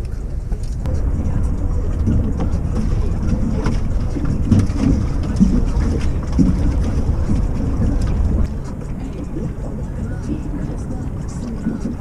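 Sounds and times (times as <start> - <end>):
faint indistinct voices: 0.0 - 12.0
water against boat: 0.0 - 12.0
wind: 0.0 - 12.0.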